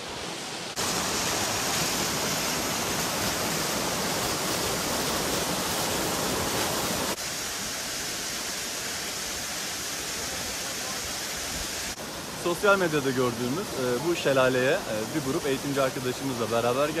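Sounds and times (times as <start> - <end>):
waterfall pouring over rock: 0.0 - 17.0.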